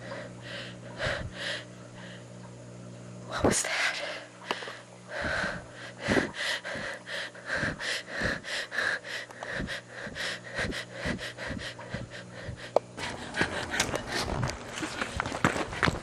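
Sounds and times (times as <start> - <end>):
woman breathing fast and heavily: 0.0 - 1.7, 4.5 - 14.5.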